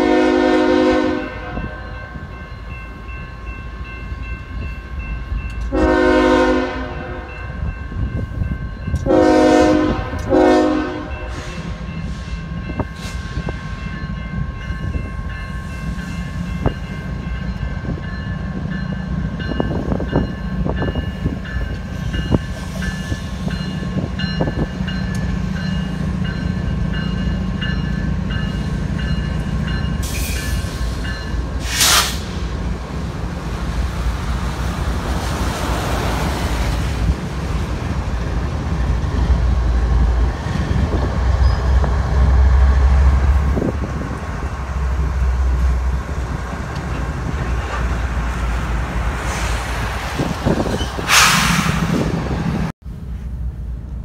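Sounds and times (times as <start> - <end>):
crossing bell ringing: 0.0 - 31.6
diesel locomotives rumbling past: 0.0 - 54.0.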